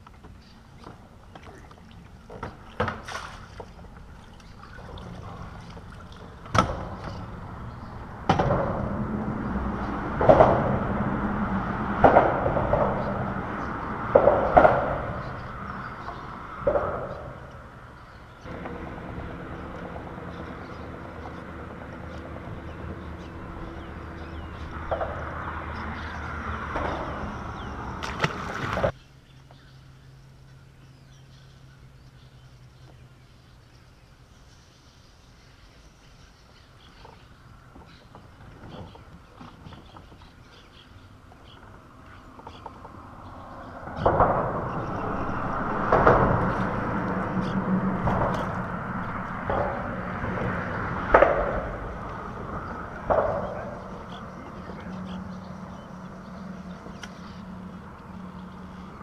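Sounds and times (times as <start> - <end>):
water splashing against kayak hull: 0.0 - 28.9, 37.0 - 59.0
wind: 0.0 - 59.0
steady low hum: 0.7 - 37.5, 40.6 - 59.0
sharp knocks: 6.4 - 17.8, 18.4 - 28.9, 42.4 - 59.0.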